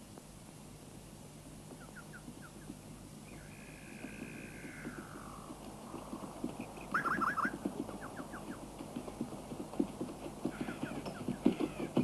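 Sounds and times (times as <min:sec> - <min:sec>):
horse hooves on woodland floor: 0:01.6 - 0:12.0
bird chirping: 0:01.8 - 0:08.6.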